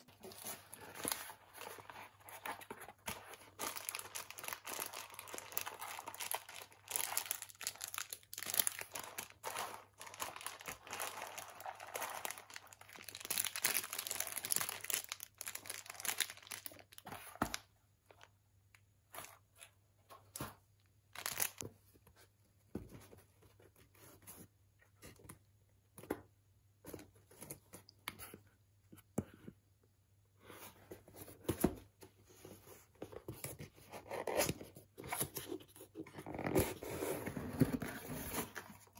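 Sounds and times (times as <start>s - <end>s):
packaging rustling and crinkling: 0.1s - 18.3s, 21.2s - 21.7s.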